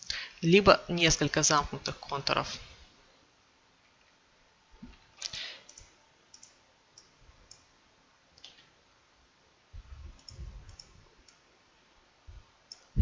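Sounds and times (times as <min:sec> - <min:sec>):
computer mouse clicking: 0:04.9 - 0:07.7, 0:08.4 - 0:08.7, 0:10.2 - 0:11.4, 0:12.7 - 0:12.9.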